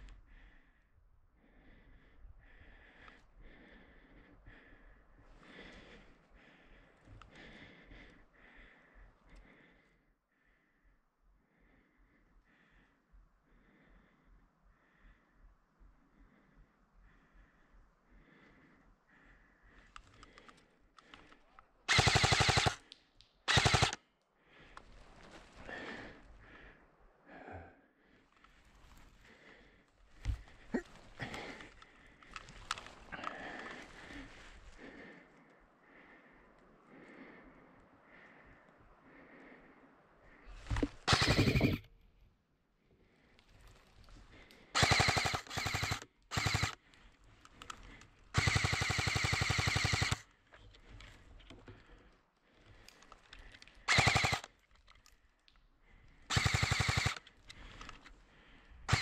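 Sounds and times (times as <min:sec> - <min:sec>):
airsoft rifle full-auto bursts: 0:21.9 - 0:22.9, 0:23.5 - 0:24.0, 0:41.0 - 0:41.9, 0:44.7 - 0:46.9, 0:48.2 - 0:50.3, 0:53.9 - 0:54.6, 0:56.3 - 0:57.5.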